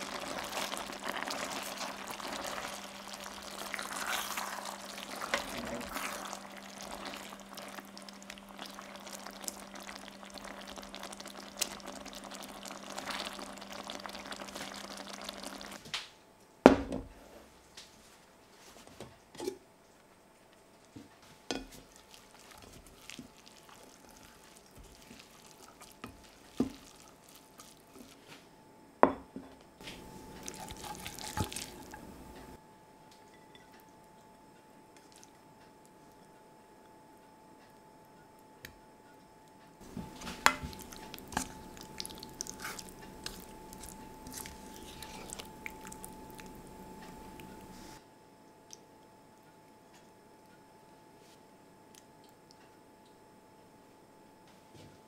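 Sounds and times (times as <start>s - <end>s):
curry bubbling while stirred: 0.0s - 15.8s, 21.5s - 28.3s, 29.9s - 32.6s, 39.8s - 48.0s
steady low hum: 19.7s - 55.0s.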